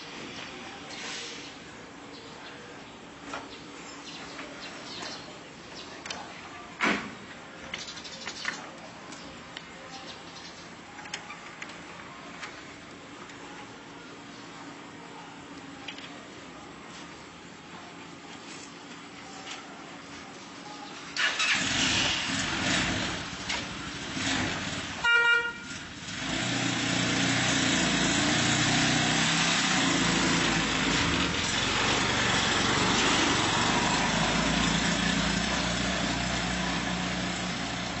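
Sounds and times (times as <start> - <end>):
horn tooting: 24.9 - 26.0
tricycle engine running: 25.6 - 38.0.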